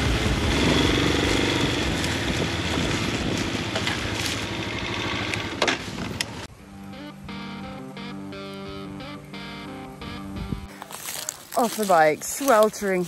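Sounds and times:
dirt bike engine running: 0:00.0 - 0:06.4.

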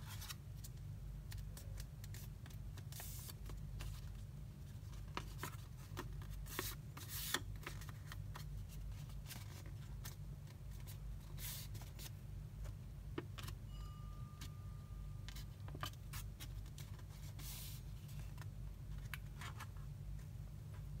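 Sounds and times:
paper rustling and crinkling: 0:00.0 - 0:12.8
steady low hum: 0:00.0 - 0:21.0.

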